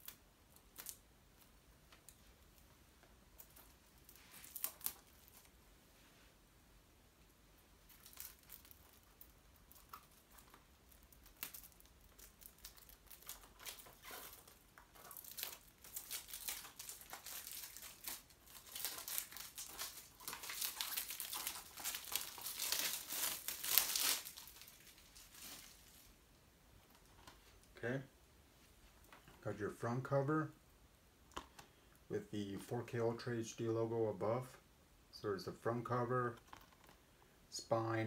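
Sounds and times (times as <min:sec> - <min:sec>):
plastic shrink wrap crinkling: 0:00.0 - 0:05.6, 0:07.8 - 0:27.8.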